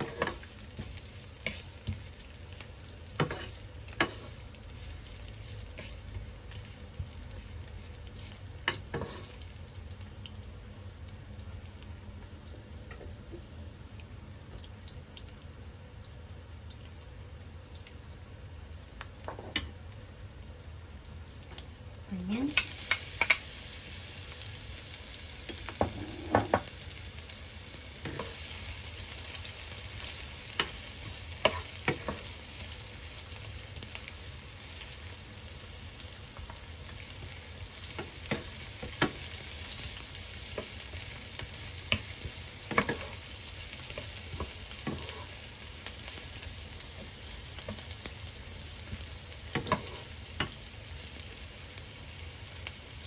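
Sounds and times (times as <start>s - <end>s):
onions sizzling in oil: 0.0s - 53.0s
wooden spatula knocking on pan: 25.7s - 26.7s.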